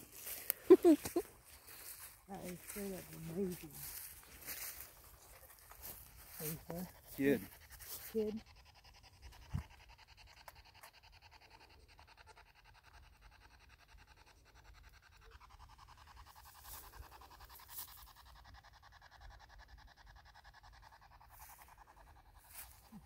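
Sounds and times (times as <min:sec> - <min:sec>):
faint rustles: 0:00.0 - 0:08.2.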